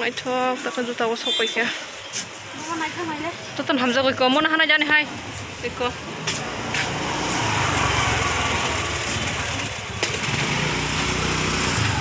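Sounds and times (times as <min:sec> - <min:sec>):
small engine rumbling: 0:06.4 - 0:12.0.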